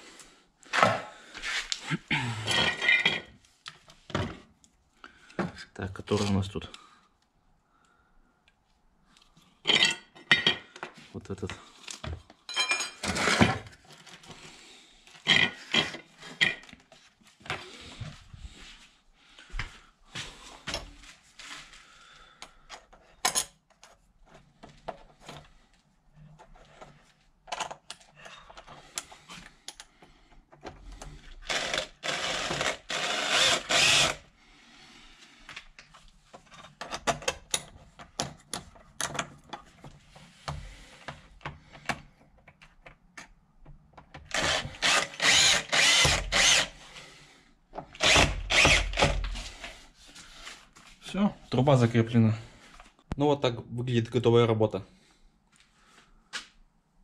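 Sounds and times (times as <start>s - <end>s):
cordless drill running: 31.4s - 34.3s, 44.3s - 46.8s, 48.0s - 49.4s.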